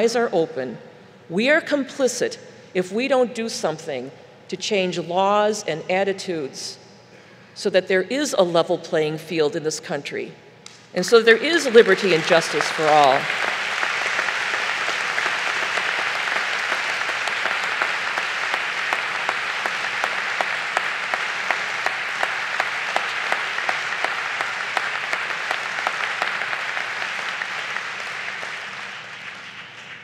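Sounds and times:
audience applauding: 11.3s - 30.0s.

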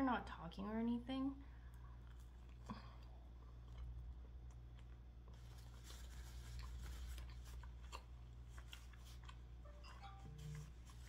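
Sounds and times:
steady low hum: 0.0s - 11.0s
close-up chewing crackles: 1.7s - 9.6s.

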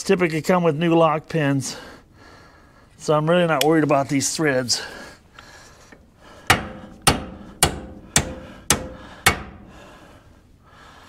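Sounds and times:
hammer striking steel: 6.5s - 9.7s.

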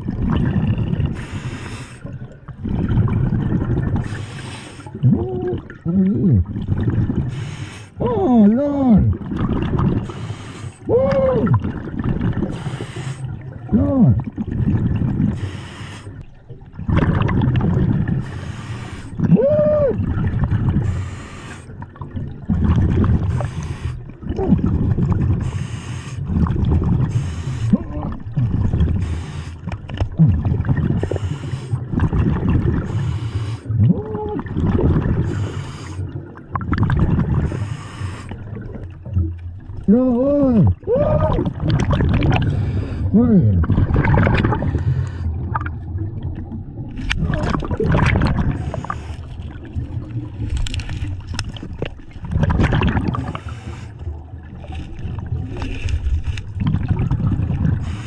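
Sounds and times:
bubbling exhales: 0.0s - 58.0s
hissing regulator inhales: 10.0s - 10.8s, 12.5s - 13.3s, 15.4s - 16.2s, 18.2s - 19.1s, 20.8s - 21.7s, 25.4s - 26.2s, 37.5s - 38.4s.

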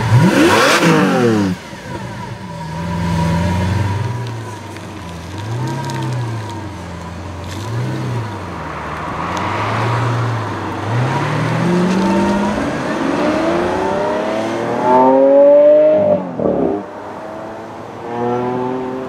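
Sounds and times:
sports car engine accelerating: 0.0s - 19.0s.

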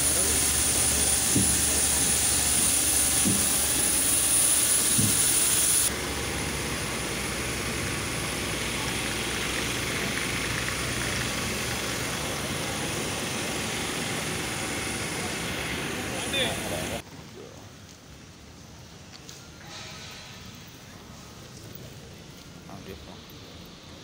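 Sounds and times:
jet engine hiss with high whine: 0.0s - 17.0s
steady apron roar: 0.0s - 17.0s.

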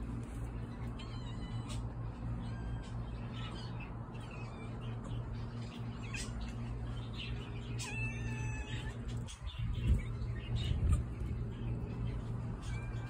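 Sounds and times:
steady low hum: 0.0s - 13.0s
cat meowing: 7.8s - 9.0s.

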